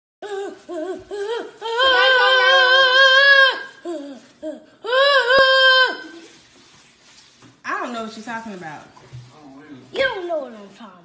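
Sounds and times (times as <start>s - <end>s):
boy making high wordless vocal sounds: 0.2s - 6.3s.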